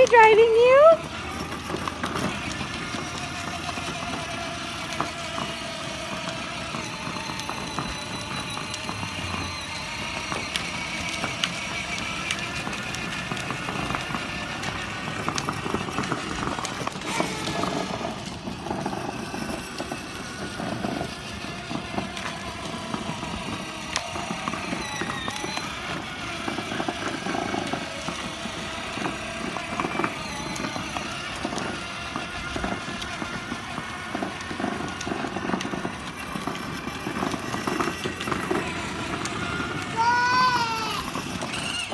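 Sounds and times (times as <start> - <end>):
plastic wheels rolling on asphalt: 0.0 - 41.9
toy car electric motors whining: 0.0 - 41.9.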